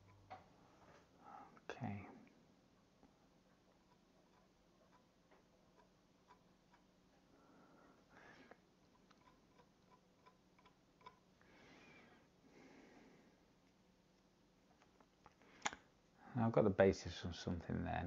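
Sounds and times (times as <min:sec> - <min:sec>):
faint ticking: 0:03.0 - 0:07.0.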